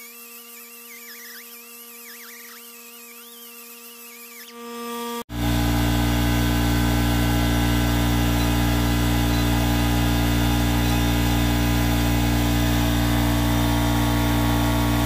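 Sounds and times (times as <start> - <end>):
machine hum with low drone: 5.3 - 15.0.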